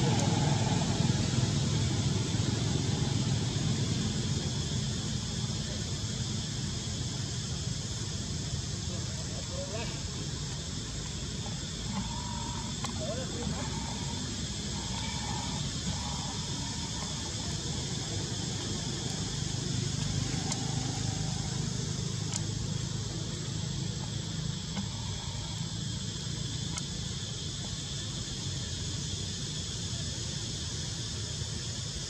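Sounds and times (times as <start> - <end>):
high insect chorus: 0.0 - 32.0
faint clicks: 22.2 - 22.6.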